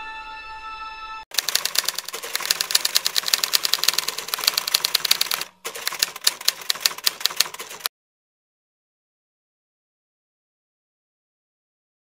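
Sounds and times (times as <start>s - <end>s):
keyboard typing clicks: 1.3s - 7.9s.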